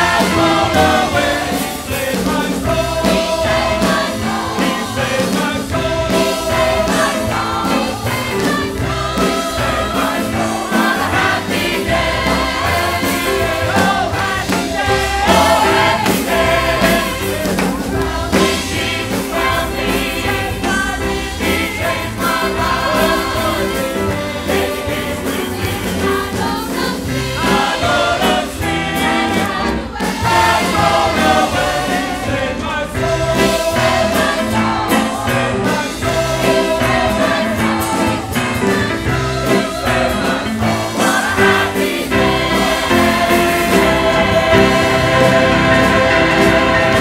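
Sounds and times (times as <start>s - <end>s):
church choir singing: 0.0s - 47.0s
instrumental accompaniment: 0.0s - 47.0s.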